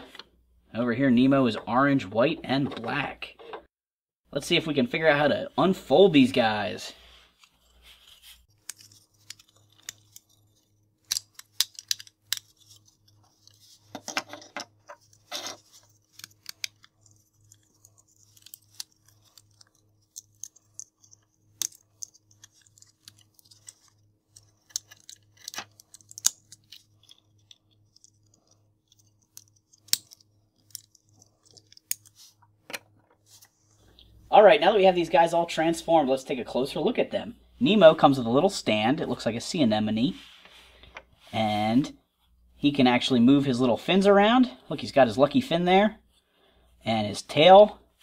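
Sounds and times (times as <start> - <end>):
plastic rubbing and handling: 6.8 - 14.1, 14.7 - 34.3
plastic parts clicking and snapping: 8.6 - 33.1.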